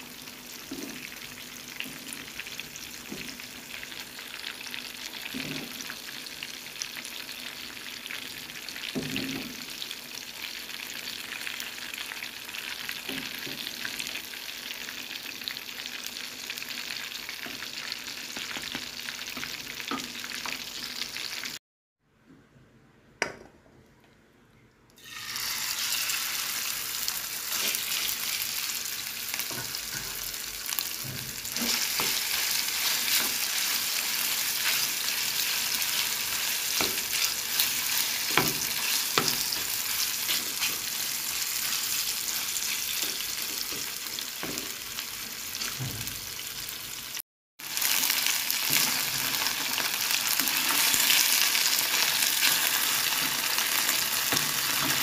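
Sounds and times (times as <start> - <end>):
chicken sizzling in hot oil: 0.0 - 21.6, 25.0 - 55.0.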